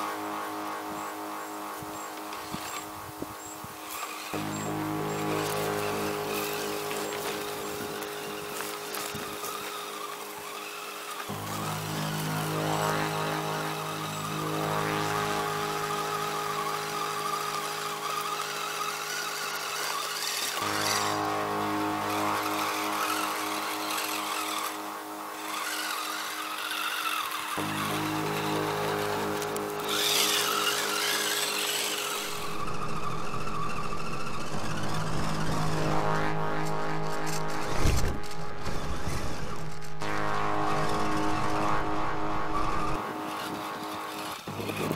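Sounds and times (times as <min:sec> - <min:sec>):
low hum: 0:00.0 - 0:44.9
toy car motor whining: 0:02.3 - 0:02.8, 0:03.4 - 0:12.7, 0:16.4 - 0:21.2, 0:22.1 - 0:35.6, 0:43.4 - 0:44.9.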